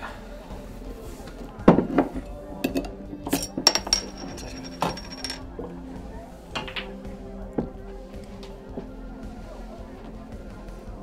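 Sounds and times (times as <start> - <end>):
quiet bar music: 0.0 - 11.0
glass bottles clinking: 2.7 - 5.4
metallic ringing rattle: 3.4 - 5.4.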